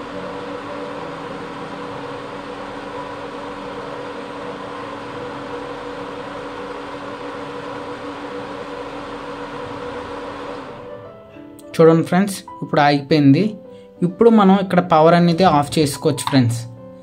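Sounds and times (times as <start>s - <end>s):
cooling fan whirring: 0.0s - 11.0s.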